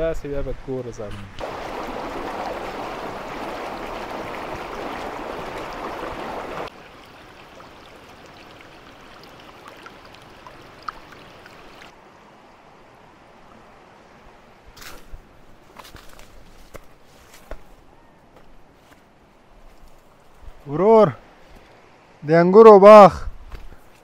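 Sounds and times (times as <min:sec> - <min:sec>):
stream rushing over rocks: 0:01.4 - 0:14.1.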